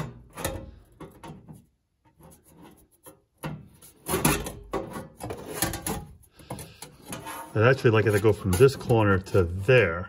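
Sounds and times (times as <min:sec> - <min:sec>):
sheet metal knocks and scraping: 0:00.0 - 0:09.8
sheet metal clatter: 0:02.6 - 0:06.2.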